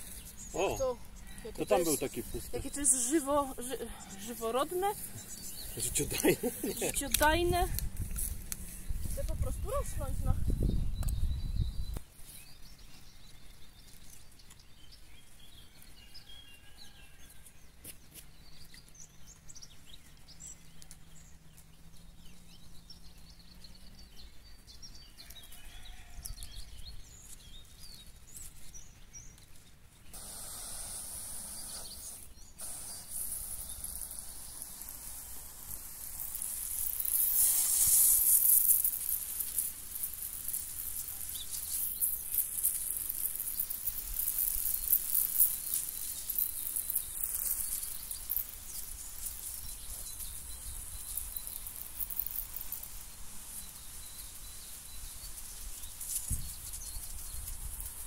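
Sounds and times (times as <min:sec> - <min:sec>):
hose water spraying: 0:00.0 - 0:10.3, 0:30.1 - 0:54.6
small birds chirping: 0:00.0 - 0:58.0.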